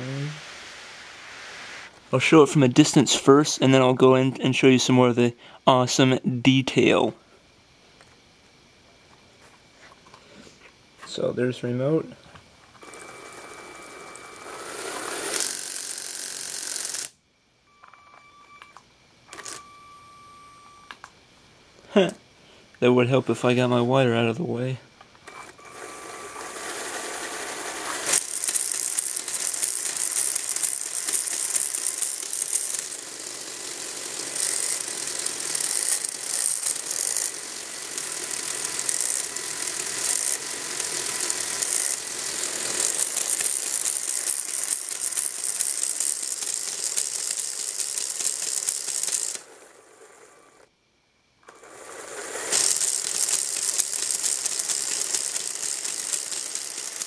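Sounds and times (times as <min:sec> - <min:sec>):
whirring rattle of plastic gears: 0:12.8 - 0:17.2, 0:25.2 - 0:50.7, 0:51.4 - 0:57.0.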